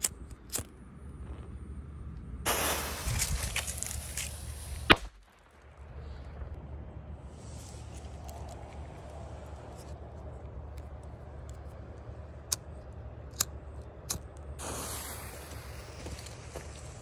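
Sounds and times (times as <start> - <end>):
lit fuse hissing: 2.5 - 5.0, 14.6 - 17.0.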